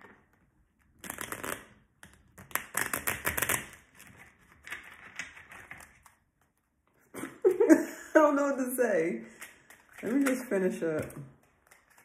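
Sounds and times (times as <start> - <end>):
cards being shuffled: 1.0 - 1.7, 2.4 - 6.2.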